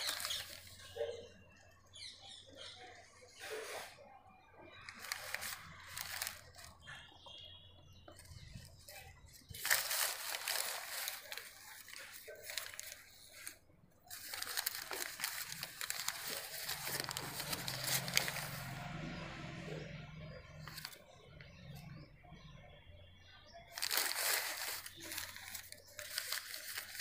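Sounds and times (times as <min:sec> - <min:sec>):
paper rustling and crinkling: 0:00.0 - 0:01.1, 0:04.7 - 0:07.3, 0:08.1 - 0:18.9, 0:20.3 - 0:21.9, 0:23.6 - 0:27.0.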